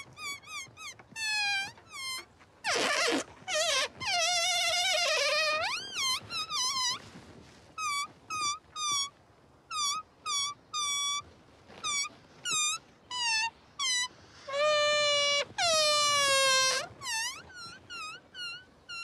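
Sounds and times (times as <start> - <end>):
balloon squealing as air escapes: 0.3 - 7.0, 13.1 - 19.0.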